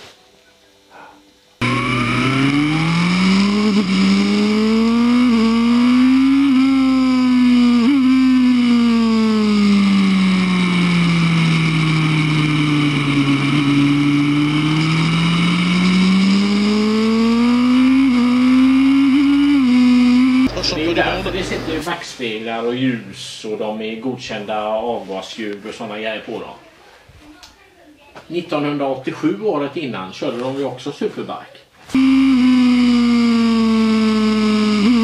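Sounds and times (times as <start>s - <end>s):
motorcycle engine at high revs: 1.6s - 21.8s, 32.0s - 35.0s.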